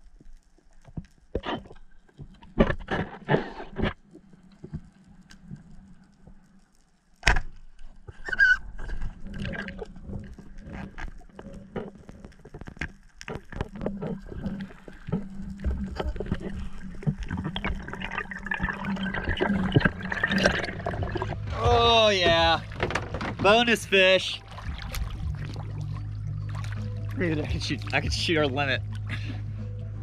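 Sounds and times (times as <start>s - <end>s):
underwater bubbling and gurgling: 0.0s - 30.0s.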